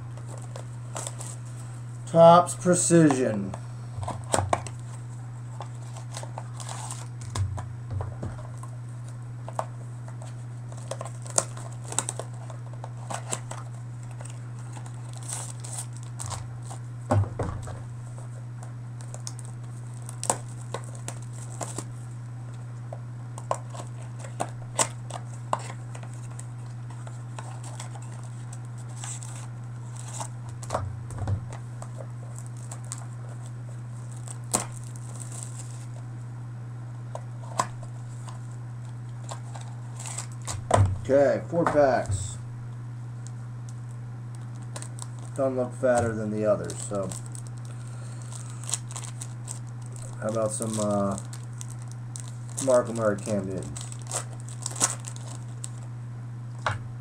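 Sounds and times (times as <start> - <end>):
steady low hum: 0.0 - 57.0
crinkling and tearing of wrappers: 0.2 - 2.2, 4.0 - 7.4, 8.6 - 16.8, 19.0 - 22.0, 23.4 - 30.7, 31.5 - 36.0, 37.4 - 40.6, 43.7 - 55.9.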